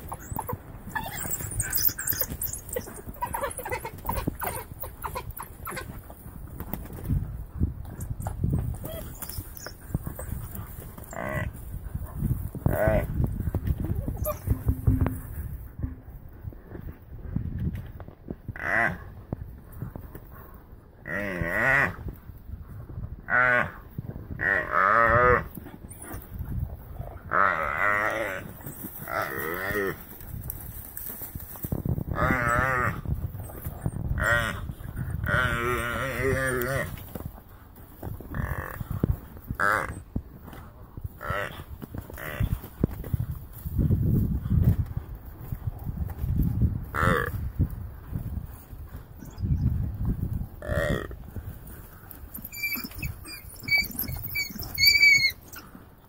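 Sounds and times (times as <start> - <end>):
wild dogs chirping: 0.0 - 6.0, 52.4 - 55.8
oryx bleat-like bawl: 18.6 - 19.0, 34.2 - 37.0, 39.6 - 40.0, 41.2 - 42.5, 46.9 - 47.4, 50.6 - 51.2.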